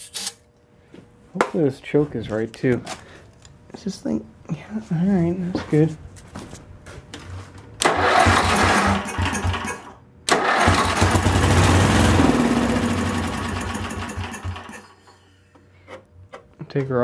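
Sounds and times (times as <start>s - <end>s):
small engine firing and running: 7.8s - 14.9s
electric starter cranking engine: 7.8s - 15.1s.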